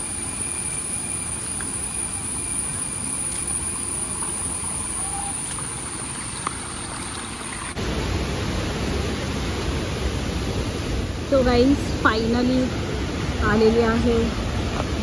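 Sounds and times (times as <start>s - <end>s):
stream water rushing: 0.0s - 11.3s
thin high whine: 0.0s - 15.0s.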